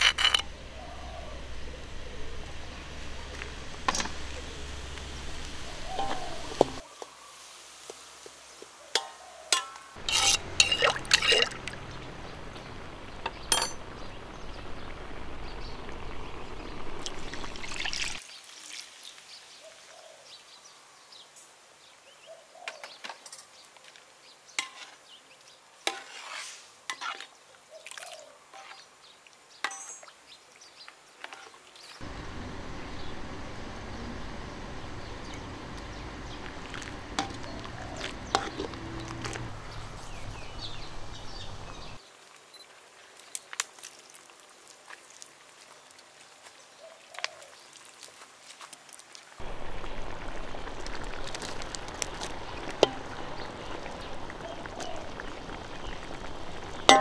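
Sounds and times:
utensils clinking on dishes: 9.0s - 11.6s, 13.5s - 13.8s
liquid pouring: 17.0s - 18.9s, 49.4s - 57.0s.

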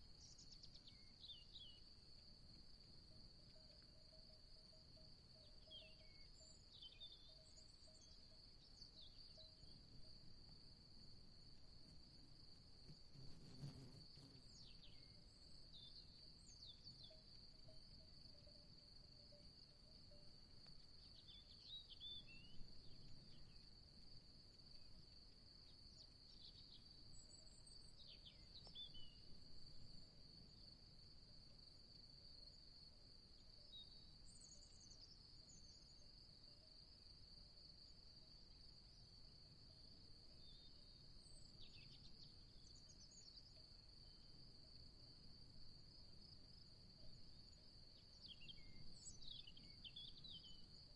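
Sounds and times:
insect trill: 0.0s - 50.9s
bird chirps: 5.4s - 9.8s.

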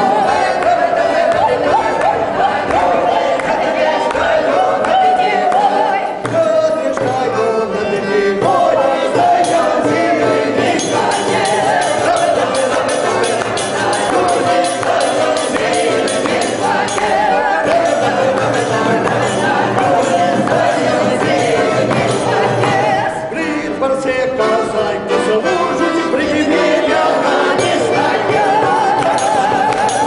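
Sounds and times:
button accordion: 0.0s - 30.0s
mixed choir singing: 0.0s - 30.0s
tambourine beat: 8.4s - 23.0s, 26.7s - 30.0s.

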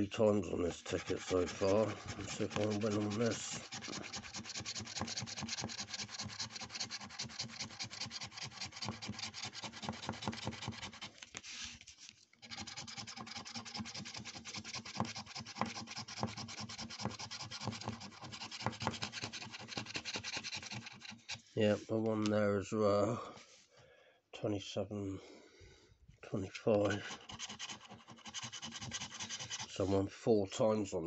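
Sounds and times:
scratchcard coating being scratched: 0.6s - 11.2s, 12.5s - 21.4s, 26.8s - 29.9s.

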